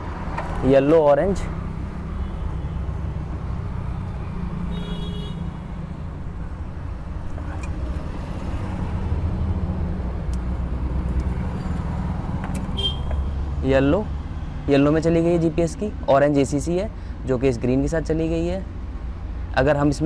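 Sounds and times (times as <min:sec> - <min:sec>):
clicks of wires being twisted: 0:07.2 - 0:08.0, 0:10.2 - 0:13.2.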